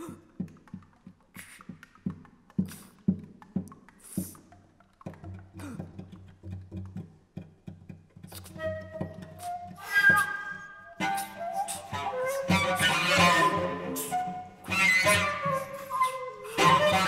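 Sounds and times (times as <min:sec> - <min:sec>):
bowed cello: 0:05.3 - 0:17.0
flute notes: 0:08.4 - 0:17.0.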